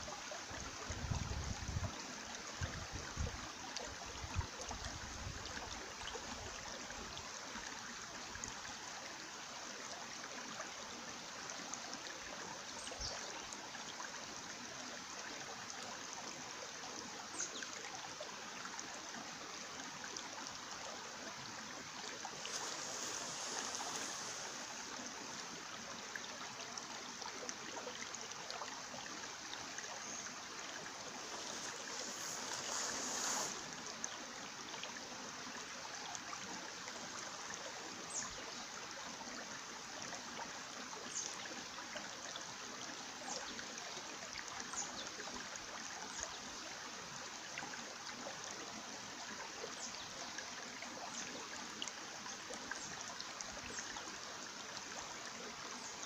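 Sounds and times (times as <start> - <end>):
stream rushing over rocks: 13.5 - 43.4.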